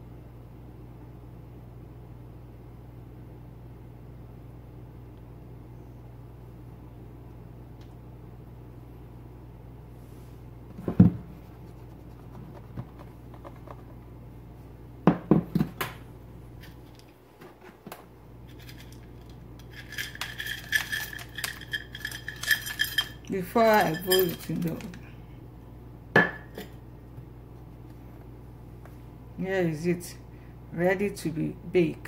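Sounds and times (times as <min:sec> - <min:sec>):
kitchenware knocking on countertop: 0:15.1 - 0:15.7
chocolate chips rattling in metal cup: 0:18.5 - 0:25.0
metal cup ringing: 0:20.2 - 0:24.8.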